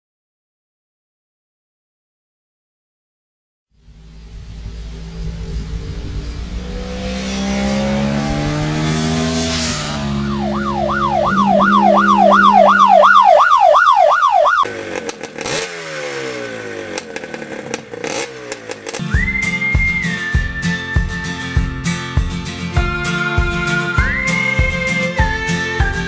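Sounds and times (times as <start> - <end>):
motorcycle engine: 3.7 - 26.0
siren-like wailing tone: 3.8 - 14.7.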